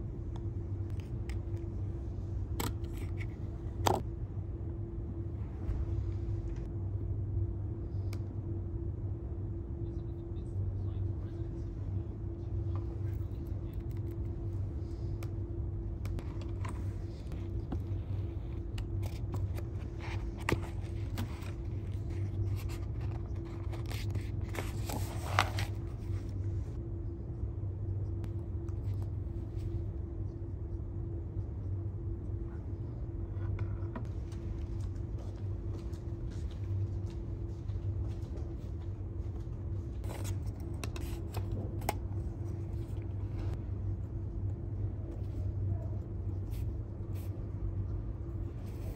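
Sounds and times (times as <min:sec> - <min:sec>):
low room hum: 0:00.0 - 0:48.9
rustling scrape: 0:16.2 - 0:26.3.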